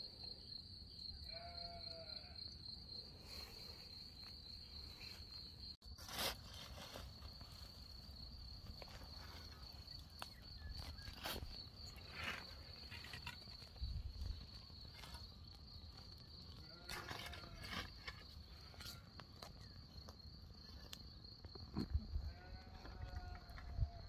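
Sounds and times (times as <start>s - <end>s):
short bleat: 1.3s - 2.3s
metal shovel scraping embers: 5.9s - 7.8s, 10.8s - 15.4s, 16.5s - 19.0s
insect chirring: 6.6s - 24.0s.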